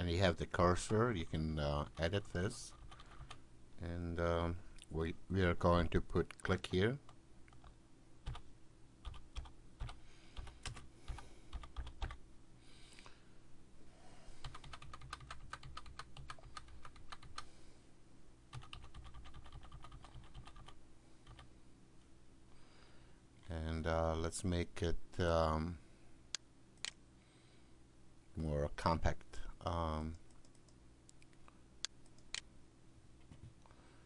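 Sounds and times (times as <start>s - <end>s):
faint low hum: 0.0s - 34.0s
typing on computer keyboard: 2.7s - 3.4s, 9.0s - 12.2s, 14.4s - 17.4s, 18.5s - 21.5s.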